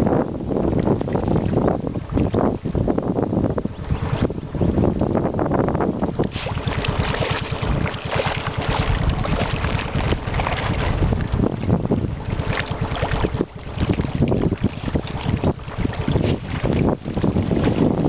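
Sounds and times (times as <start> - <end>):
wind buffeting microphone: 0.0 - 18.0
water splashing at pond edge: 6.1 - 18.0.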